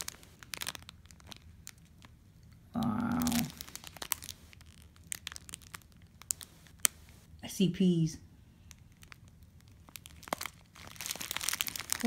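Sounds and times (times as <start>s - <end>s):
plastic bags crinkling: 0.0s - 2.2s, 2.8s - 7.3s, 8.6s - 12.0s
person humming: 2.7s - 3.6s.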